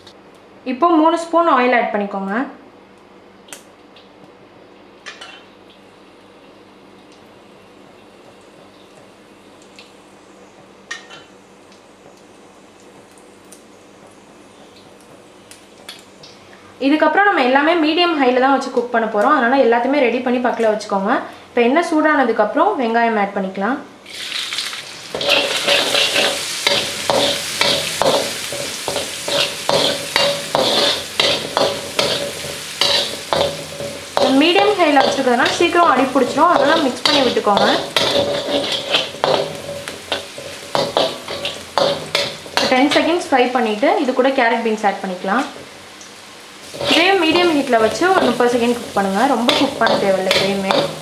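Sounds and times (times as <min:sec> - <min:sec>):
onions sizzling in oil: 0:24.0 - 0:51.0
spoon scraping a wok: 0:25.1 - 0:43.2, 0:46.6 - 0:51.0.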